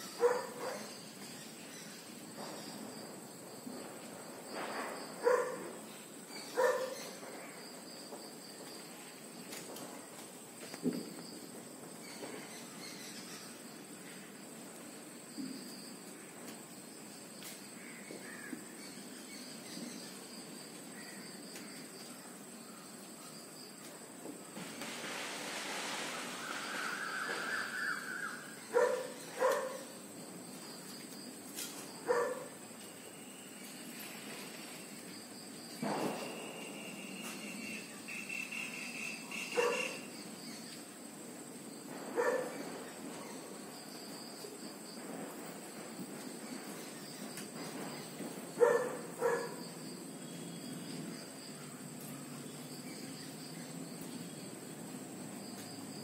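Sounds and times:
insect calls: 0:00.0 - 0:56.0
dog barking: 0:00.2 - 0:00.9, 0:05.2 - 0:05.7, 0:06.6 - 0:07.0, 0:28.7 - 0:29.9, 0:32.1 - 0:32.5, 0:39.6 - 0:40.0, 0:42.2 - 0:42.6, 0:48.6 - 0:49.6
distant bird calls: 0:24.6 - 0:30.9
high-pitched insect drone: 0:25.6 - 0:28.7.

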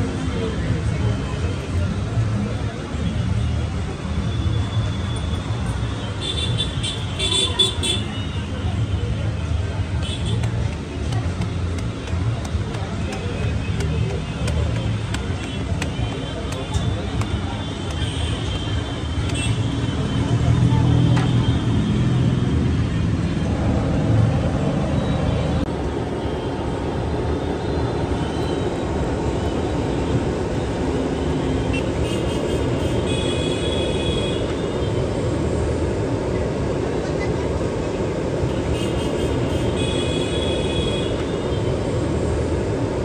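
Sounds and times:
traffic noise: 0:00.0 - 0:43.0.

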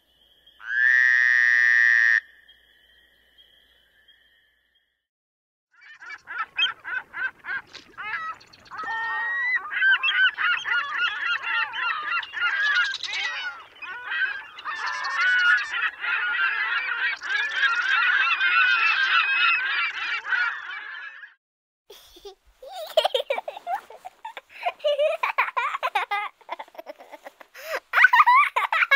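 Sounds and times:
flock of birds calling: 0:05.8 - 0:21.4.

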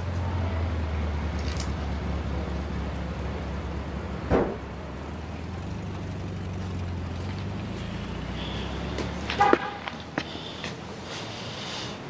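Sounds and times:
loud thump: 0:04.2 - 0:04.8.

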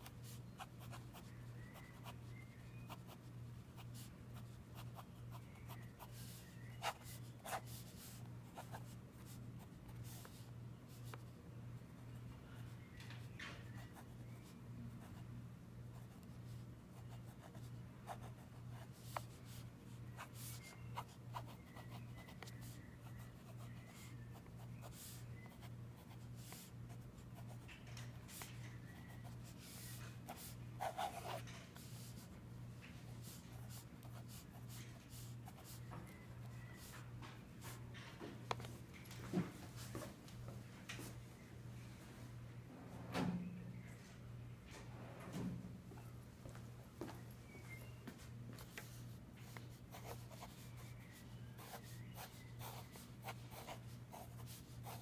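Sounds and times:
pen scratching on paper: 0:04.7 - 0:08.9, 0:28.3 - 0:32.2, 0:49.5 - 0:50.6, 0:51.6 - 0:55.0.

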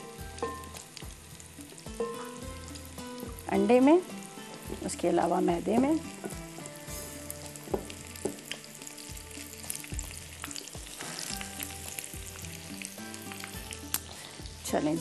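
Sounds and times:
food sizzling in hot oil: 0:00.0 - 0:15.0
soft knocks: 0:07.7 - 0:08.4.

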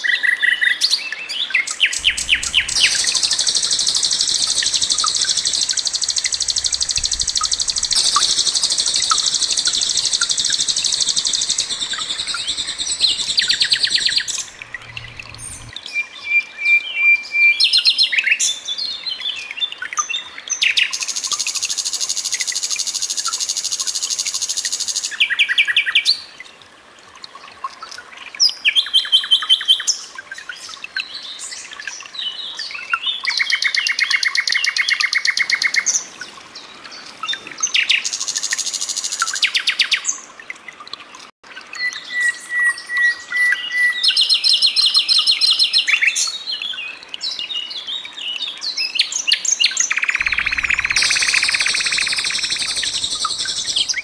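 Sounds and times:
nightingale singing trills: 0:01.0 - 0:18.1, 0:46.7 - 0:54.0.

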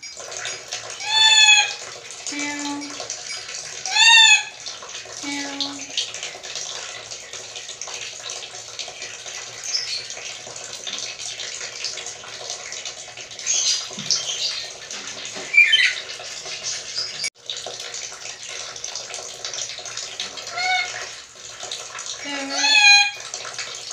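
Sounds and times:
parrot squeaky calls: 0:01.0 - 0:01.8, 0:03.3 - 0:04.6, 0:15.4 - 0:16.1, 0:20.5 - 0:21.0, 0:22.5 - 0:23.2.

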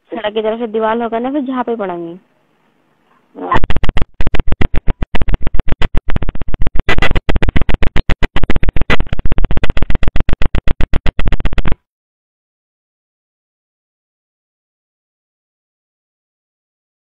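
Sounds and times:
harsh stuttering phone line noise: 0:03.4 - 0:11.8.

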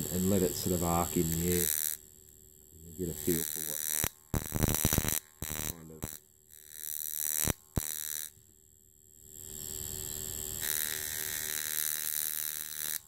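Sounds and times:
high-voltage spark buzzing: 0:00.0 - 0:08.4, 0:09.1 - 0:13.0.

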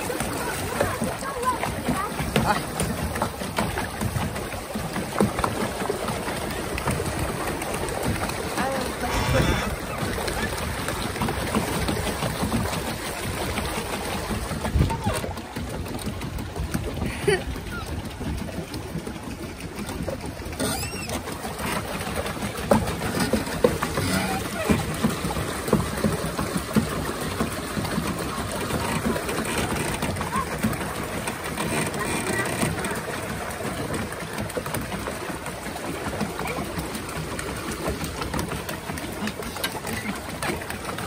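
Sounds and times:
paddle wheel churning water: 0:00.0 - 0:41.0.

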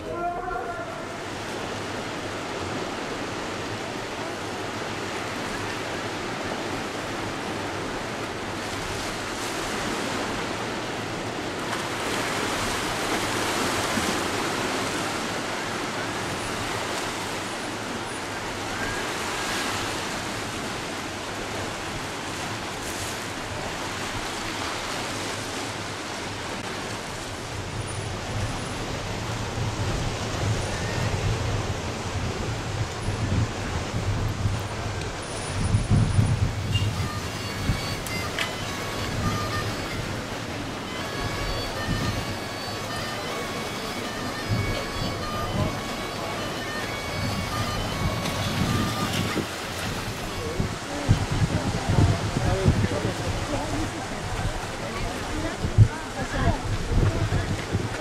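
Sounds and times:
rush of water: 0:00.0 - 0:58.0
wind noise: 0:26.1 - 0:42.6, 0:44.3 - 0:58.0.

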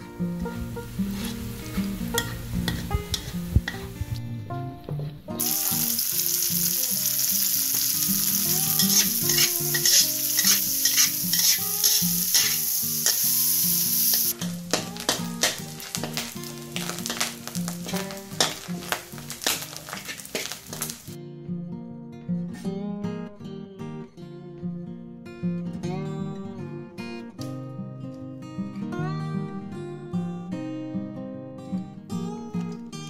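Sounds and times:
metal spatula scraping wok: 0:00.6 - 0:04.0, 0:07.7 - 0:21.1
oil sizzling in a wok: 0:00.6 - 0:04.0, 0:05.4 - 0:21.2.

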